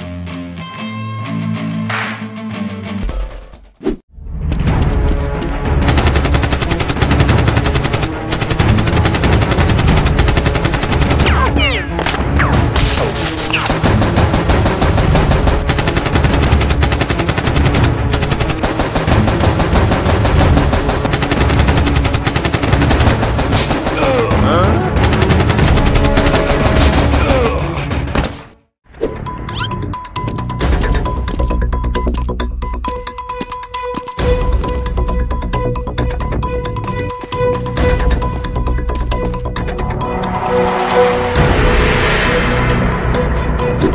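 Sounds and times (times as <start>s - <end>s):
automatic gunfire: 5.8s - 11.4s, 13.7s - 24.3s, 25.0s - 27.3s.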